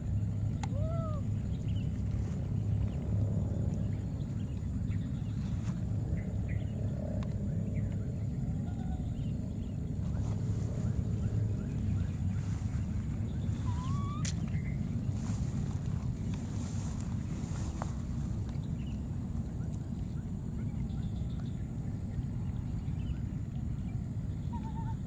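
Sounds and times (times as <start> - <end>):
steady low rumble: 0.0 - 25.0
baby monkeys squeaky calls: 13.5 - 14.5, 24.5 - 25.0.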